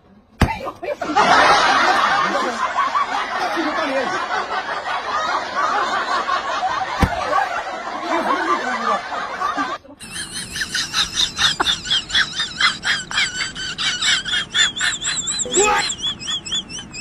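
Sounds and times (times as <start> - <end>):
giggling laughter: 0.8 - 17.0
warbling high-pitched calls: 14.0 - 17.0.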